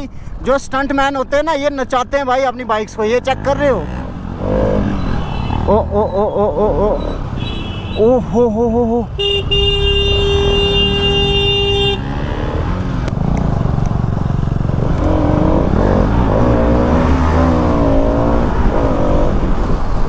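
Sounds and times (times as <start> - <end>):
road noise: 0.0 - 20.0
vehicle horn: 7.4 - 8.1, 9.1 - 12.2
motorcycle engine running: 11.5 - 16.8.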